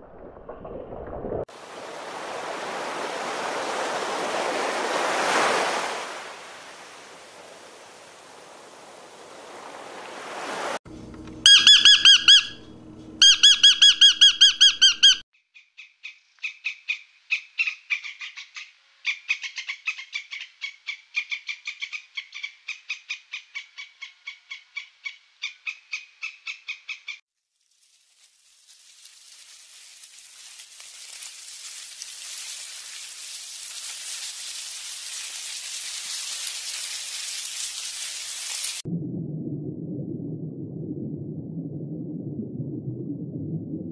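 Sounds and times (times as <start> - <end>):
squirrel chattering: 11.5 - 12.6
squirrel pitched calls: 11.5 - 12.6, 13.2 - 27.2
hiss: 28.0 - 38.8.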